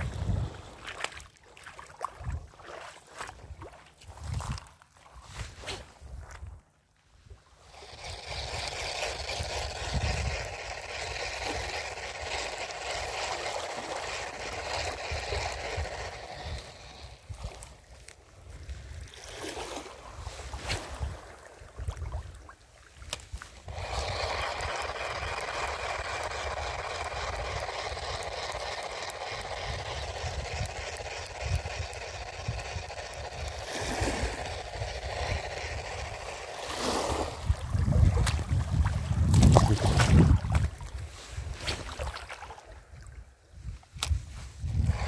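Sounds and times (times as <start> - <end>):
wind rumble on microphone: 0.0 - 0.9, 2.1 - 2.6, 3.2 - 6.7, 8.1 - 11.7, 20.1 - 28.3, 29.5 - 42.1, 42.7 - 45.0
water noise: 0.0 - 45.0
boat motor running: 7.6 - 18.2, 23.6 - 40.8.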